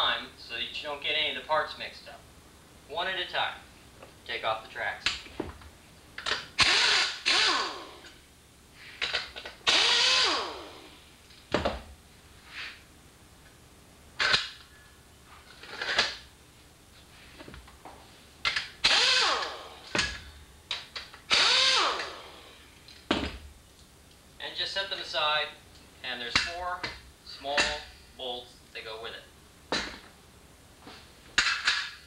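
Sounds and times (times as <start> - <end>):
air tool whirring: 6.2 - 8.2, 9.0 - 11.0, 18.8 - 20.3, 21.3 - 22.7.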